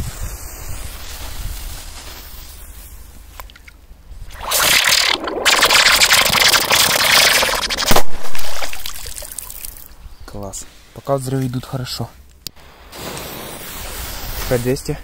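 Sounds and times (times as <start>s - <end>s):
firecracker hissing: 0.0s - 3.1s, 12.6s - 15.0s.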